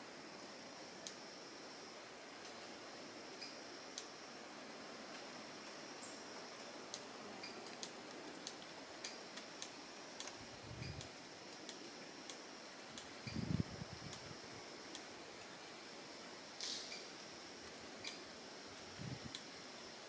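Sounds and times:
steady hiss: 0:00.0 - 0:20.0
sharp ticks: 0:06.9 - 0:13.4.

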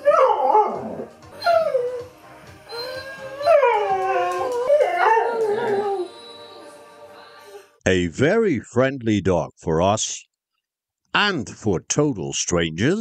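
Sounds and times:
dog howling vocal calls: 0:02.7 - 0:06.2.

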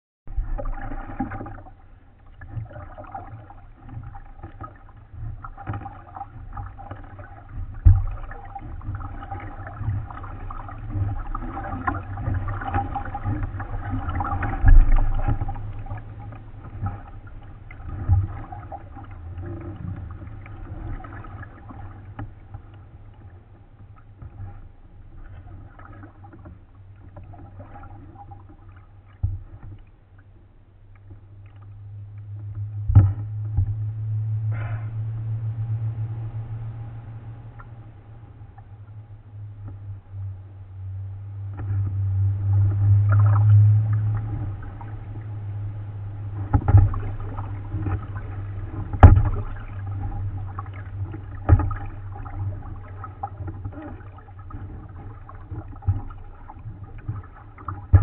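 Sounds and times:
paddle strokes: 0:00.3 - 0:58.0
water washing along hull: 0:00.3 - 0:58.0
dull knocks through hull: 0:32.8 - 0:33.8, 0:46.4 - 0:52.3, 0:57.7 - 0:58.0.

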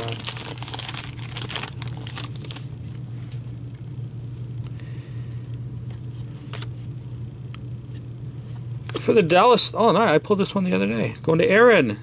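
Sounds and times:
trading cards rustling: 0:00.0 - 0:02.7
low room hum: 0:00.0 - 0:12.0.

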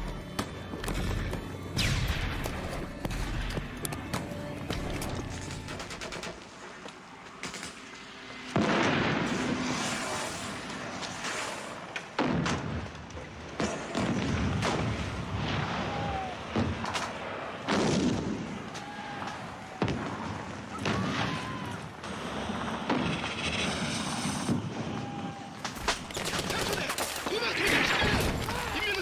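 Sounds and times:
shell explosions: 0:01.8 - 0:03.7, 0:08.5 - 0:10.2, 0:10.8 - 0:29.0.

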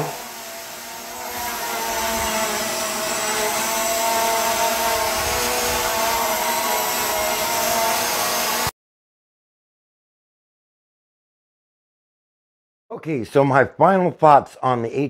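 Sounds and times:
drone propellers buzzing: 0:00.0 - 0:08.7.

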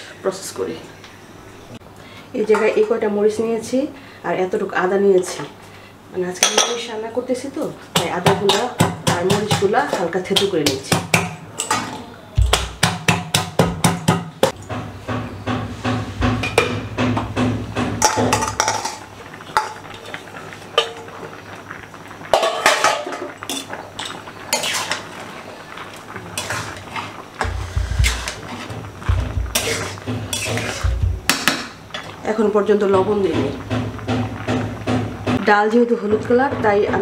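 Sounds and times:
pestle knocking steel bowl: 0:12.4 - 0:18.8, 0:27.4 - 0:31.8.

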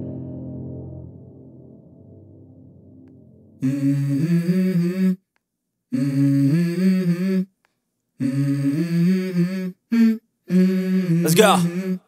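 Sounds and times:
person humming a melody: 0:03.6 - 0:05.3, 0:05.9 - 0:07.6, 0:08.2 - 0:12.0.

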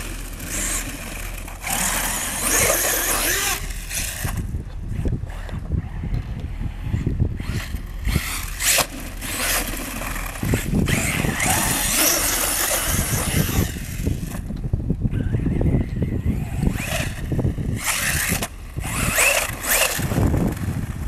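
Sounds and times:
electric motor whine: 0:00.0 - 0:21.0.

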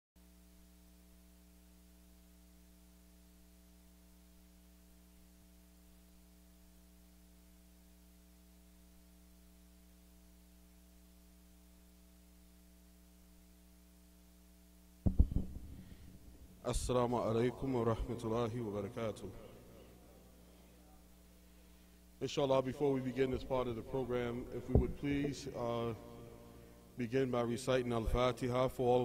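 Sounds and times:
faint mains hum: 0:00.2 - 0:29.0
microphone handling bumps: 0:15.0 - 0:16.9, 0:24.5 - 0:25.5.

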